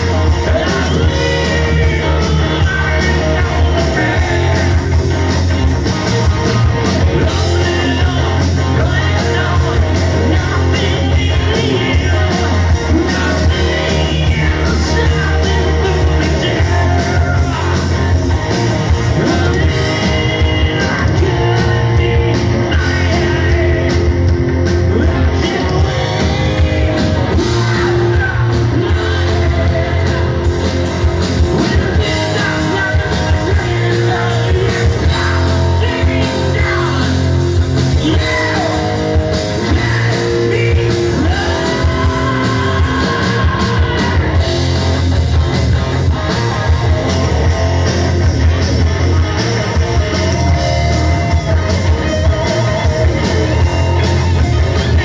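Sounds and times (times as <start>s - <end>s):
person singing: 0.0s - 5.1s, 7.0s - 18.2s, 18.8s - 44.6s
bass guitar: 0.0s - 55.0s
distorted electric guitars: 0.0s - 55.0s
drums: 0.0s - 55.0s.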